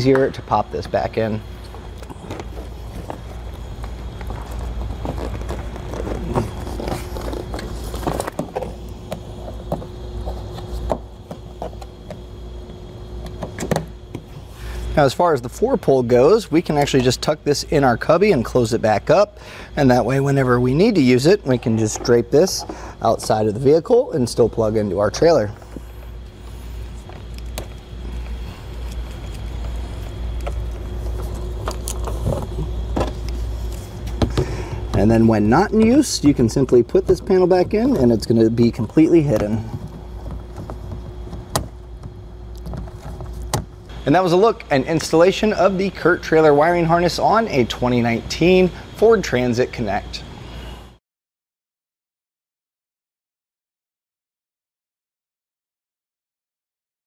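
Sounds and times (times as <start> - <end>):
low steady hum: 0.0 - 51.0
plastic scraping and rubbing: 2.0 - 11.9.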